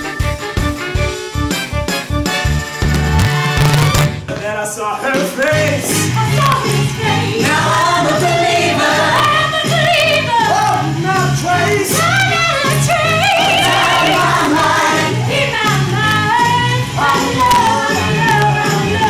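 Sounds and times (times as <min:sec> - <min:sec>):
steady beat: 0:02.5 - 0:04.6
group singing show tune: 0:04.3 - 0:19.0.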